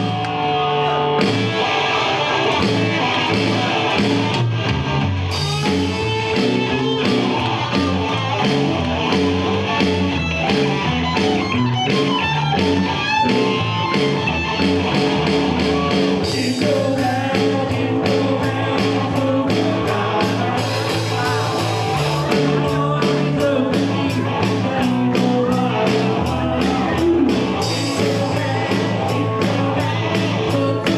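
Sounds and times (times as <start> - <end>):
drum beat: 1.2 - 1.7, 2.5 - 30.9
person singing: 15.8 - 30.9.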